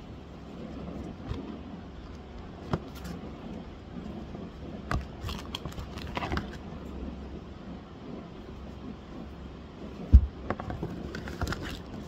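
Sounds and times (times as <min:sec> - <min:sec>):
steady low hum: 0:00.0 - 0:12.0
paper rustling and crinkling: 0:10.7 - 0:12.0.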